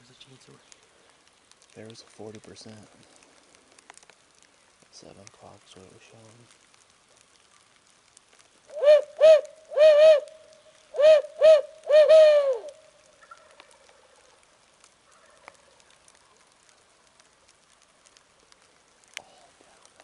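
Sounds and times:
owl hooting: 0:08.7 - 0:10.3, 0:10.9 - 0:13.6.

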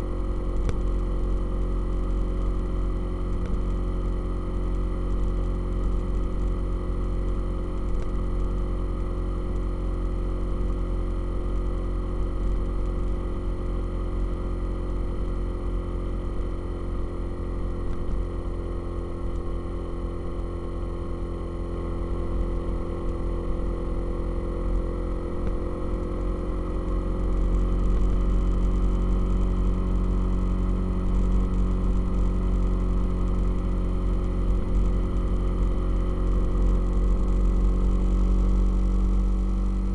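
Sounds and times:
motorcycle engine cruising: 0:21.7 - 0:39.9.

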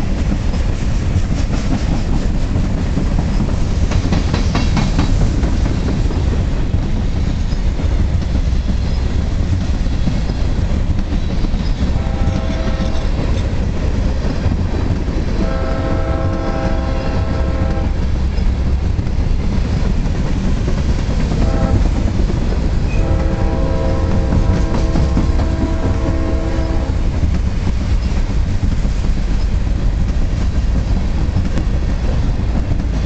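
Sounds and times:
freight cars rumbling on rails: 0:00.0 - 0:33.0
locomotive horn: 0:12.0 - 0:13.2, 0:15.4 - 0:18.1, 0:21.4 - 0:21.9, 0:22.9 - 0:27.1.

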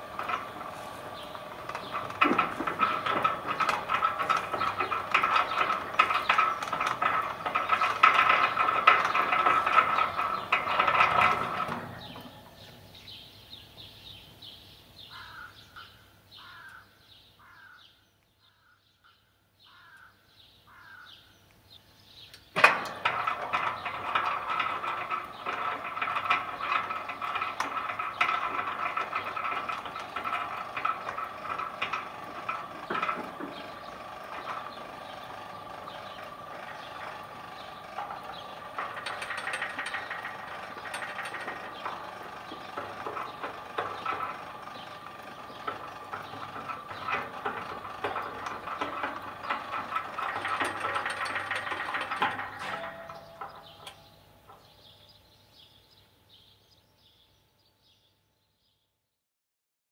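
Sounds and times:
gate clunk: 0:00.0 - 0:13.2, 0:22.5 - 0:55.0
gate motor whining and rattling: 0:00.0 - 0:14.2, 0:22.3 - 0:56.8.

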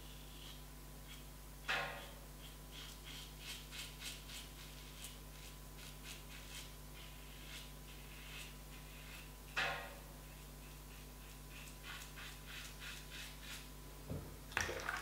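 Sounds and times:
razor scraping stubble: 0:10.3 - 0:13.7.

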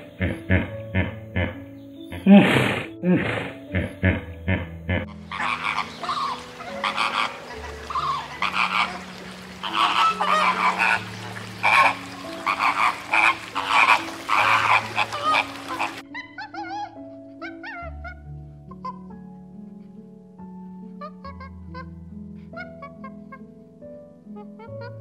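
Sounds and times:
flamingos honking: 0:05.0 - 0:18.1.

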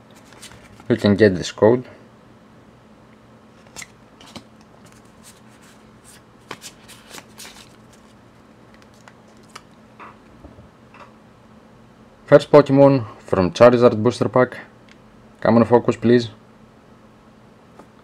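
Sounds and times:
card pack wrapper crackling: 0:06.1 - 0:09.8.

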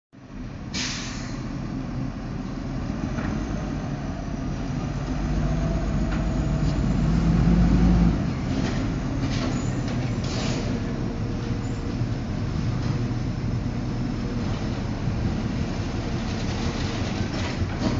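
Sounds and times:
garbage truck engine running: 0:04.9 - 0:17.9.

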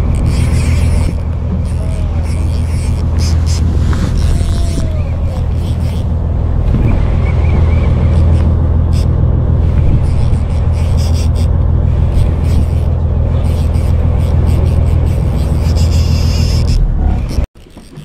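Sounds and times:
boat engine droning: 0:00.0 - 0:18.0.

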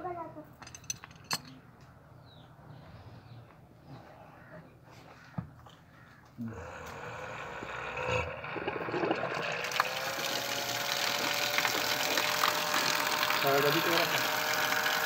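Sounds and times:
pump motor whine: 0:06.5 - 0:15.0
water rushing from pipe: 0:07.1 - 0:15.0.

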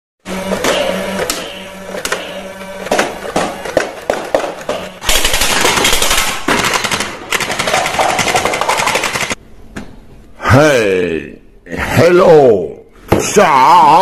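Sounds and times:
toy blaster shots: 0:00.4 - 0:03.9, 0:05.0 - 0:09.4
toy blaster rapid-fire bursts: 0:05.0 - 0:09.4.

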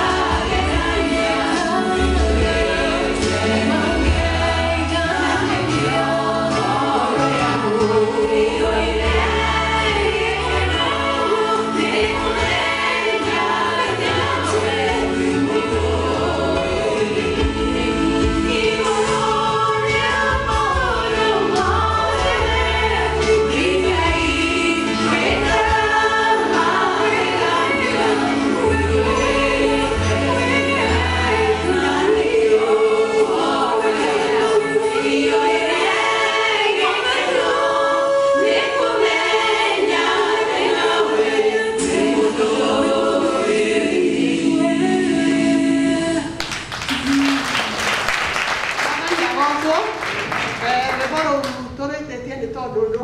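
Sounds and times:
bass accompaniment: 0:00.0 - 0:47.8
vocal group singing gospel: 0:00.0 - 0:51.2.

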